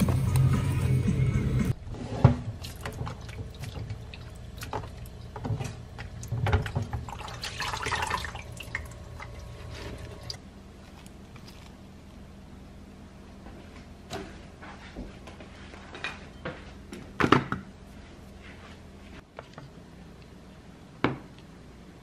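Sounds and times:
water sloshing in a bowl: 2.5 - 10.4.

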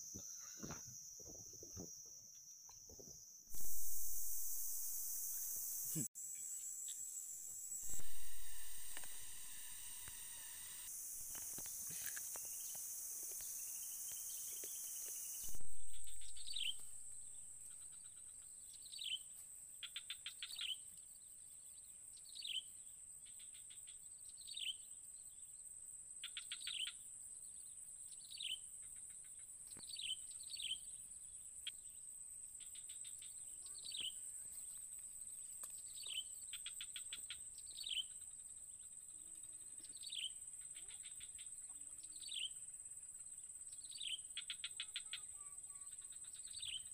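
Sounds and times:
insects droning: 0.0 - 46.9
buzzy bird trills: 13.5 - 18.3.

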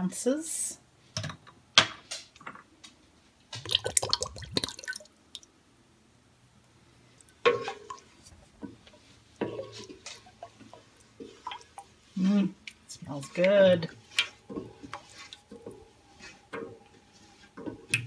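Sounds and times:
wet squishing of stirred batter: 3.5 - 5.4, 7.0 - 18.0.

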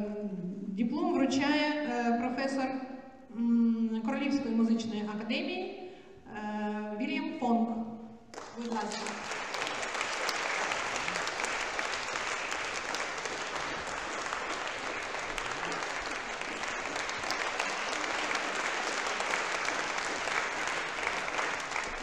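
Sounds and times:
audience applauding: 8.3 - 22.0.

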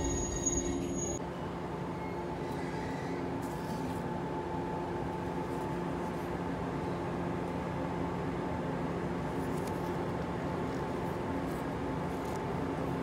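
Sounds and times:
train carriage rumble: 0.0 - 3.4.

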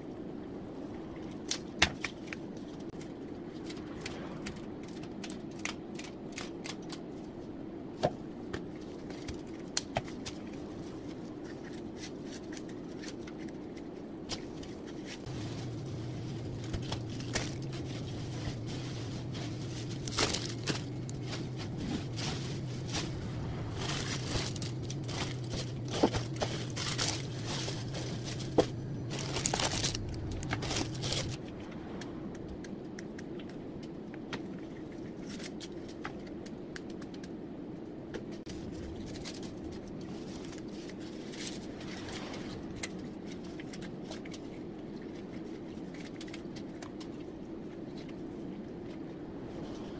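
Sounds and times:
low steady hum: 0.0 - 49.9
leaves rustling on newspaper: 14.4 - 31.4.

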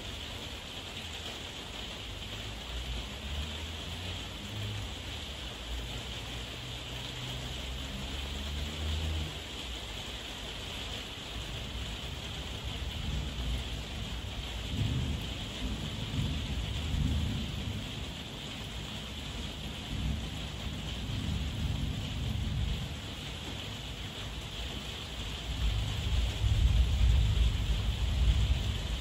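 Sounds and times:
heavy rain: 0.0 - 29.0
thunder rumbling: 11.6 - 23.6, 25.4 - 29.0.

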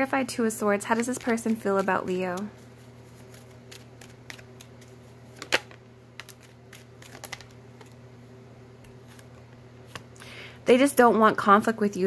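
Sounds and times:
steady low hum: 0.0 - 12.0
playing cards clicking and snapping: 3.2 - 8.0.

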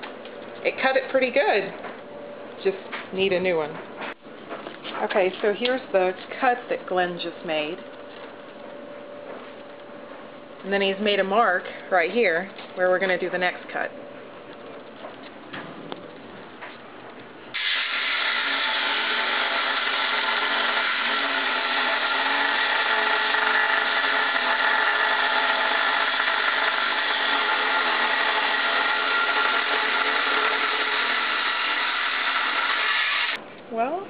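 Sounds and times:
angle grinder cutting metal tube: 17.6 - 33.4.

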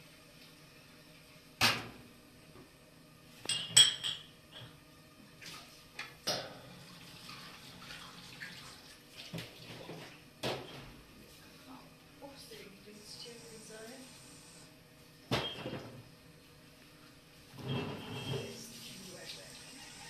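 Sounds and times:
crockery clinking in a steel sink: 3.5 - 4.7.

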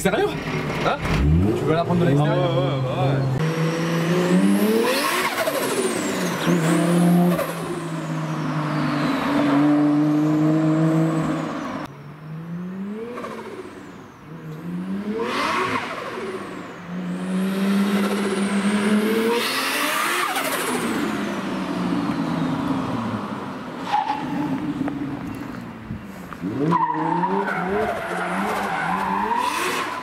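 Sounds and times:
car engine accelerating hard: 0.4 - 23.2.

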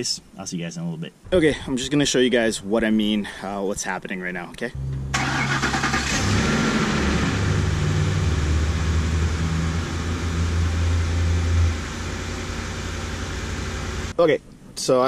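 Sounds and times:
pickup truck engine idling: 4.8 - 14.2.

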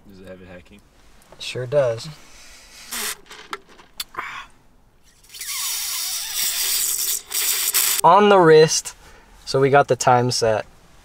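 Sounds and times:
slurping through a straw: 5.2 - 8.0.

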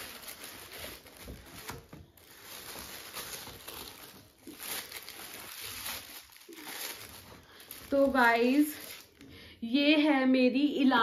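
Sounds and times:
tissue paper rustling: 0.0 - 9.2.

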